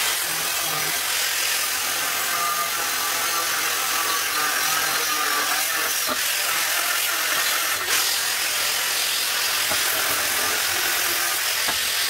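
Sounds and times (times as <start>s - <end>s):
angle grinder cutting steel: 0.0s - 12.0s.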